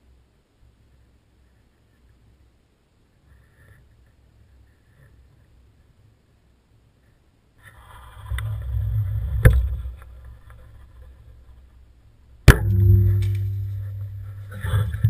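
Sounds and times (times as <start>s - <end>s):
low rumble: 8.2s - 15.0s
ringing hum: 12.4s - 15.0s
bow shot cracks: 12.5s - 15.0s.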